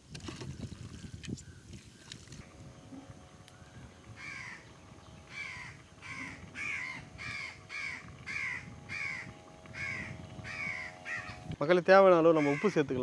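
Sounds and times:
faint steady hum: 0.0 - 13.0
crow cawing: 3.6 - 4.7, 5.3 - 11.5, 12.3 - 13.0.

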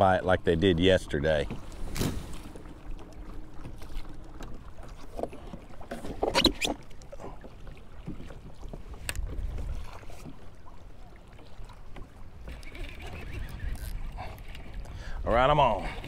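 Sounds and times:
water slapping against kayak hull: 1.3 - 15.0.

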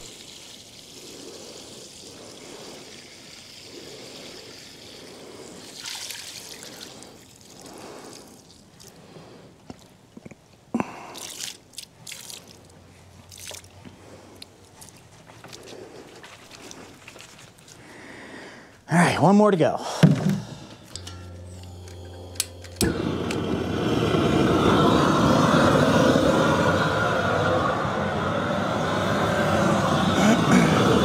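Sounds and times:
liquid trickling and dripping: 0.0 - 10.0, 10.9 - 17.9.

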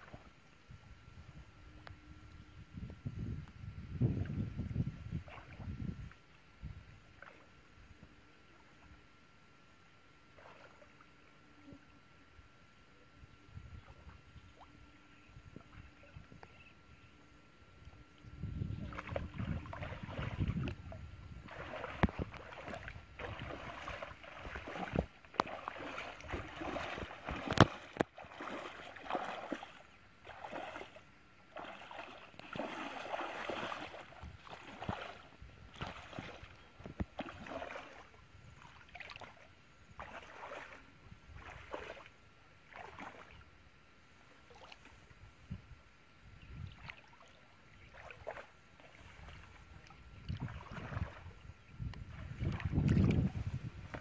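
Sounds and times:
muddy water splashing: 5.2 - 5.9, 7.1 - 7.6, 10.3 - 11.0, 18.6 - 43.4, 44.4 - 45.0, 46.7 - 54.0.

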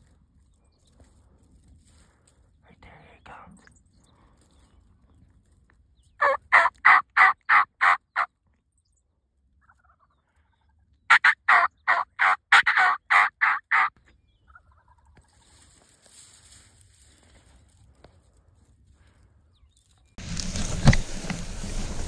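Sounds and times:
wild turkey yelping: 6.2 - 8.3, 9.6 - 13.9.

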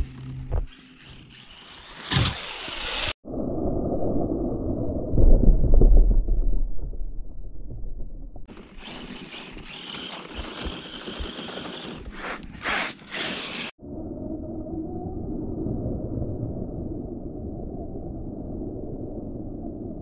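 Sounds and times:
radio-controlled truck running: 0.0 - 3.1, 8.5 - 13.7.

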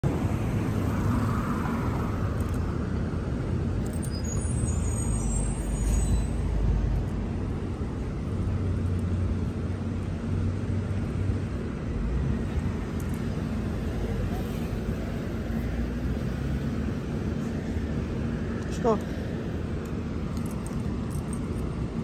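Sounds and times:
traffic rumble: 0.0 - 22.0
faint high squeal: 4.0 - 6.5.

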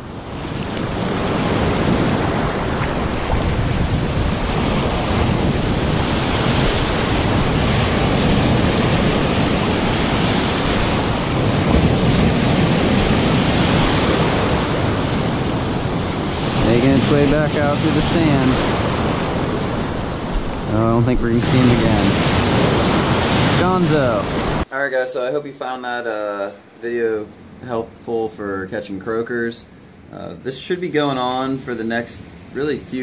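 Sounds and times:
wind on microphone: 0.0 - 24.6
beach surf washing and foaming: 0.0 - 24.7
waves breaking: 0.0 - 24.7.

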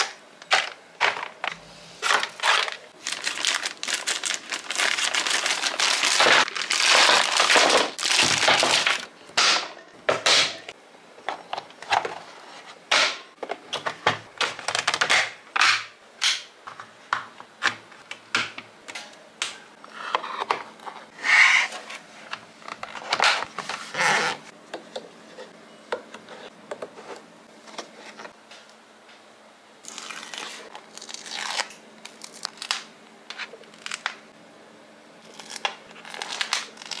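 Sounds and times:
plastic bag crinkling: 2.0 - 9.1.

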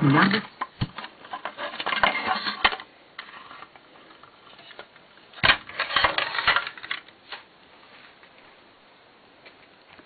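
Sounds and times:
plastic and metal parts clattering: 0.2 - 7.4.

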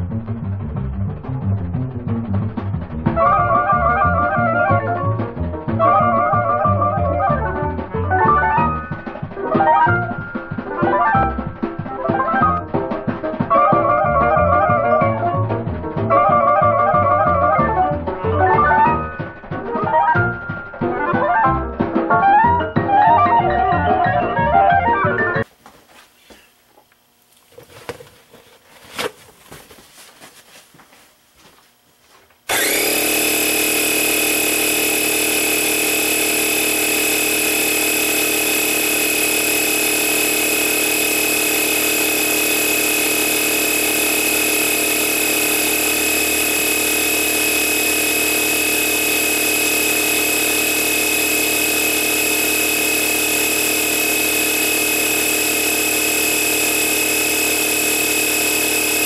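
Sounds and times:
air compressor running: 32.5 - 59.0.

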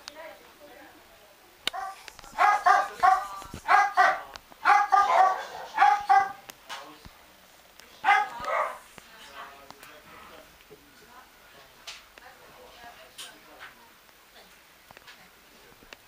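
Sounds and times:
dog barking high-pitched: 1.7 - 6.4, 8.0 - 8.8.

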